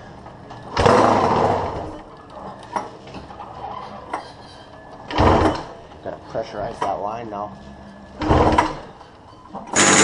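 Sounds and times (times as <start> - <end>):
motorcycle engine revving: 9.8 - 10.0.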